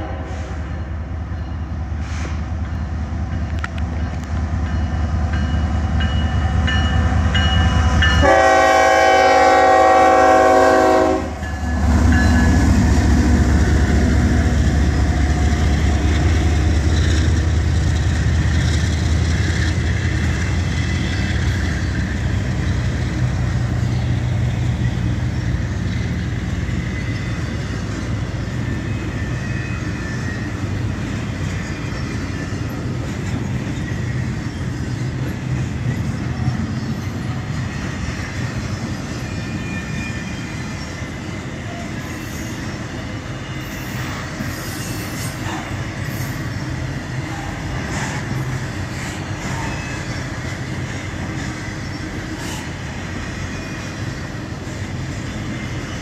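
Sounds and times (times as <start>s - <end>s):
train wheels rumbling on rail: 0.0s - 56.0s
high wheel squeal: 24.8s - 56.0s.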